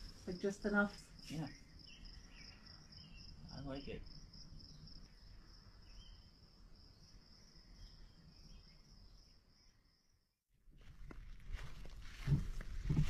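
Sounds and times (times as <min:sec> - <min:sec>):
night insects trilling: 0:00.0 - 0:10.3.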